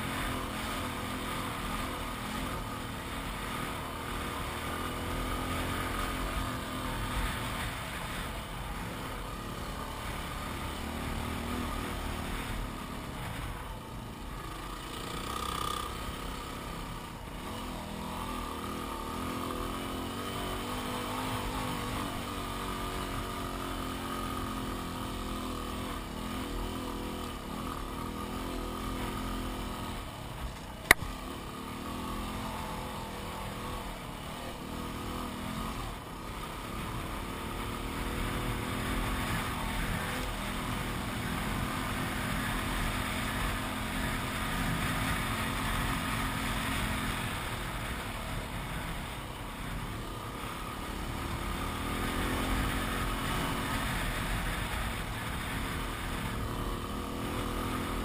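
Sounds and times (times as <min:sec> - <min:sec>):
motorcycle engine running: 0:00.0 - 0:58.0
sharp click: 0:30.8 - 0:31.1.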